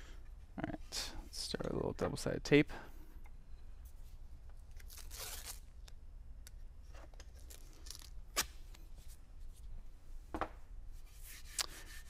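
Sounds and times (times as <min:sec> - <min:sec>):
tape rustling: 0:04.7 - 0:05.9
tape ripping off roll: 0:04.8 - 0:05.6.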